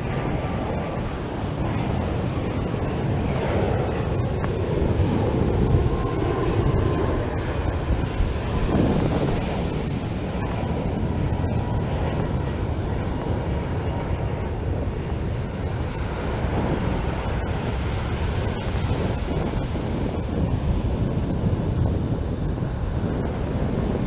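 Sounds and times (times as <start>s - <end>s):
ocean surf breaking: 0.0s - 12.9s, 13.6s - 24.0s
wind on microphone: 0.0s - 24.0s.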